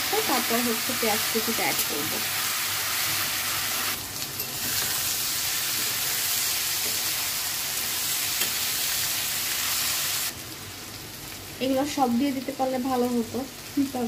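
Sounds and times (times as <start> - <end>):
vegetables sizzling in hot oil: 0.0 - 14.0.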